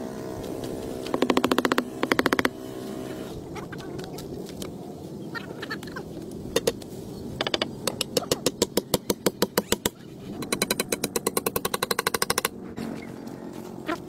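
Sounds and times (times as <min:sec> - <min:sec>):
hammer striking nail into wood: 0:01.0 - 0:02.5.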